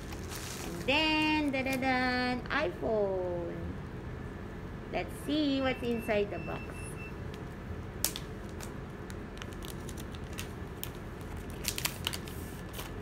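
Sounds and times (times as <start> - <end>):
plastic wrap crinkling: 0.0 - 1.8, 8.0 - 13.0
low background hum: 0.0 - 13.0.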